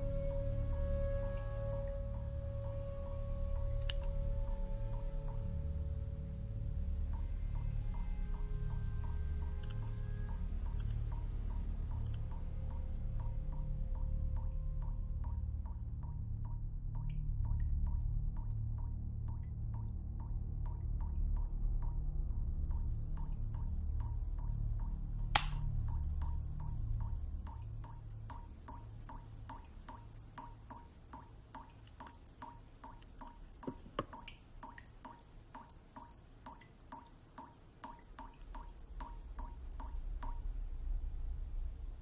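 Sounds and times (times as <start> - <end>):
tap dripping into a sink: 24.8 - 40.4
sharp click: 25.4 - 25.6.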